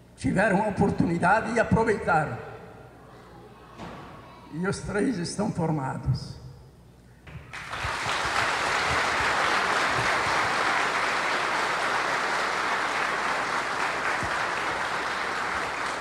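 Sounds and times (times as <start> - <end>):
audience applauding: 7.5 - 16.0.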